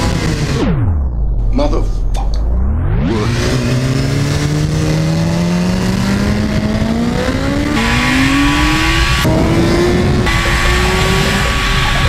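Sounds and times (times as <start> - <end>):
motorcycle engine accelerating: 0.0 - 12.0
wind rush: 6.5 - 12.0.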